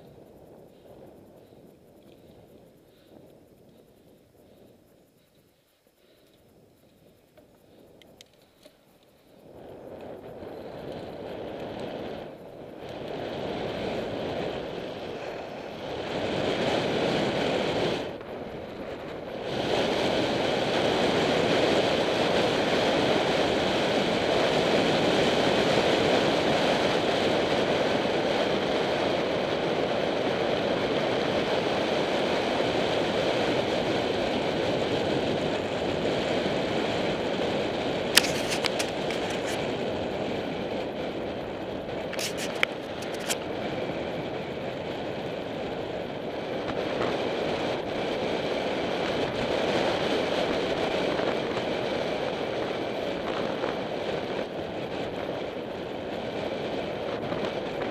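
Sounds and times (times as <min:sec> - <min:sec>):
wind rushing over microphone: 0:00.0 - 0:57.9
tyres rolling on tarmac: 0:10.5 - 0:57.9.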